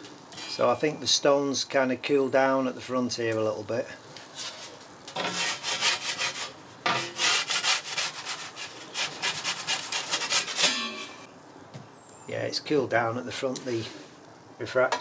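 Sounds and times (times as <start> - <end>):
pizza paddle scraping stone: 4.3 - 10.9.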